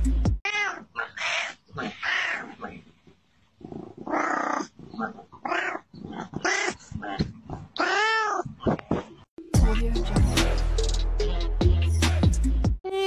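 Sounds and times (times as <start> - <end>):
cat meowing: 0.4 - 2.8, 7.8 - 8.6.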